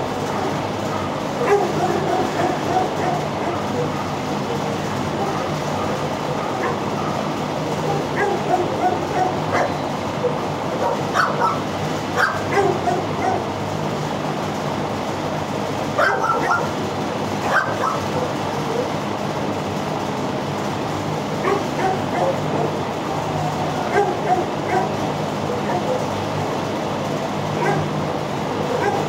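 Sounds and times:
steady background hum: 0:00.0 - 0:29.0
dogs barking and yelping: 0:00.3 - 0:13.6, 0:16.0 - 0:19.1, 0:21.4 - 0:26.3, 0:27.5 - 0:29.0.

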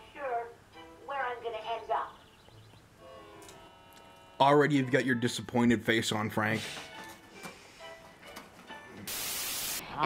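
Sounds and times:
voice: 0:01.1 - 0:02.2.

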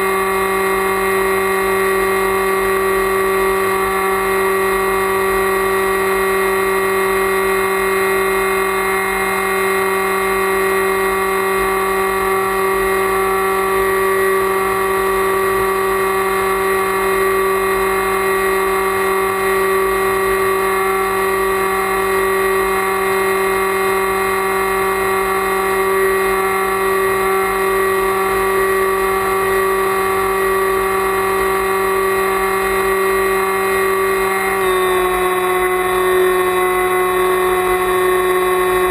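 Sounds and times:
electric motor whine: 0:00.0 - 0:38.9.

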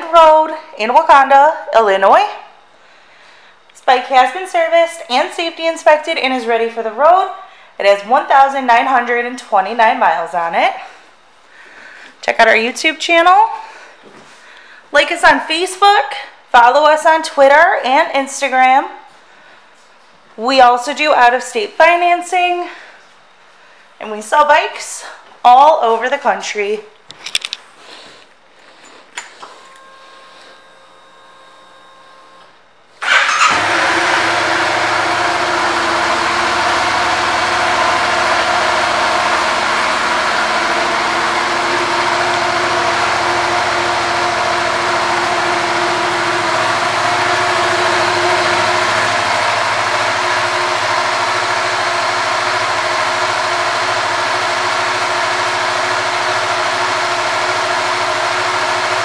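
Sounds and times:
motorcycle engine starting and idling: 0:33.0 - 0:59.0.

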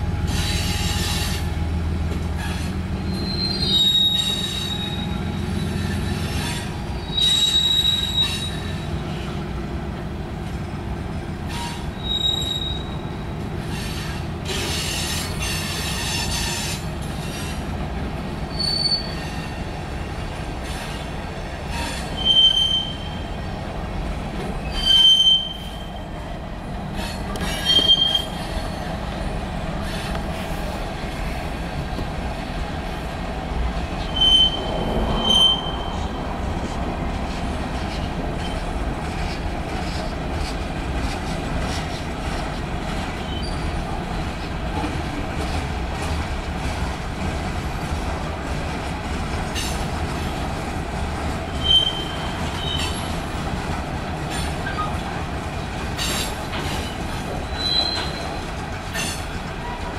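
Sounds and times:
train wheels rumbling on rail: 0:00.0 - 0:59.9
high-pitched wheel squeals: 0:02.4 - 0:08.9, 0:11.5 - 0:13.1, 0:18.5 - 0:19.6, 0:21.7 - 0:23.2, 0:24.6 - 0:26.0, 0:27.0 - 0:28.9, 0:34.0 - 0:36.2, 0:43.2 - 0:43.7, 0:51.5 - 0:53.1, 0:57.4 - 0:58.4.

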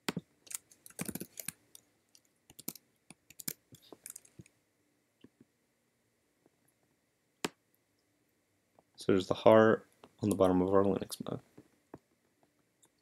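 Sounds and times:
keyboard typing: 0:00.0 - 0:01.6, 0:02.2 - 0:04.4.

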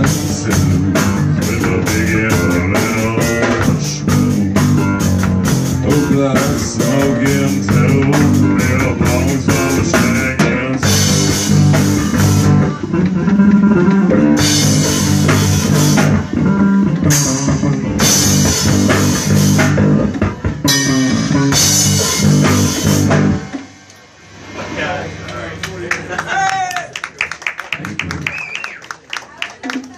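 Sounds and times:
drum kit with cymbal crashes: 0:00.0 - 0:26.5.

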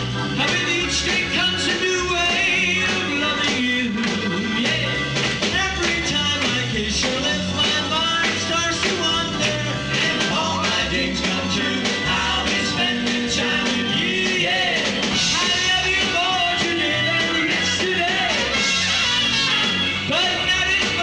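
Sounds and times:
rock band playing: 0:00.0 - 0:21.0
steady drum beat: 0:00.0 - 0:21.0
man singing into microphone: 0:00.4 - 0:18.6, 0:20.1 - 0:21.0.

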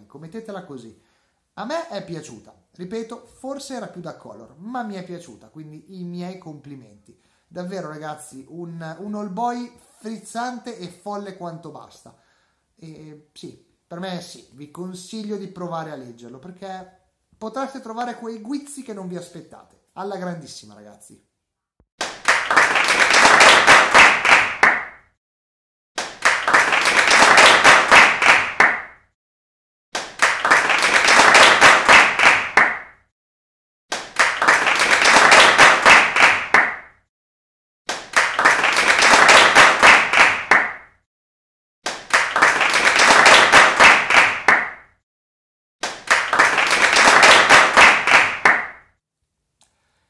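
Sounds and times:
applause: 0:22.0 - 0:25.0, 0:26.0 - 0:29.0, 0:30.0 - 0:33.0, 0:33.9 - 0:36.9, 0:37.9 - 0:40.9, 0:41.9 - 0:44.9, 0:45.8 - 0:48.9.

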